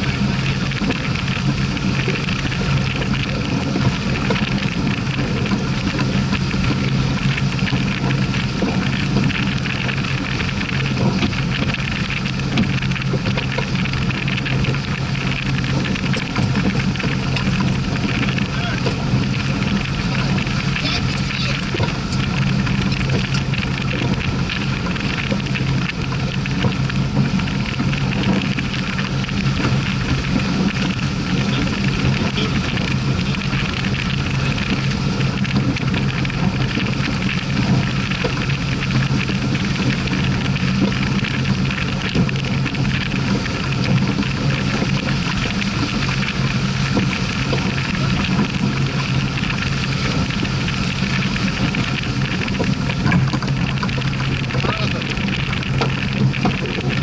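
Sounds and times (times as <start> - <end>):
water rushing along hull: 0.0 - 57.0.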